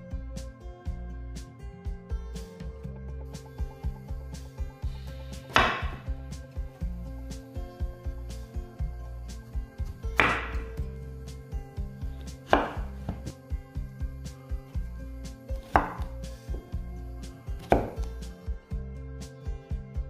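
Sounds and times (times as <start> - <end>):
background music: 0.0 - 20.0
knife chopping on wooden board: 5.5 - 6.1, 9.8 - 10.8, 12.4 - 13.4, 15.6 - 16.2, 17.6 - 18.1.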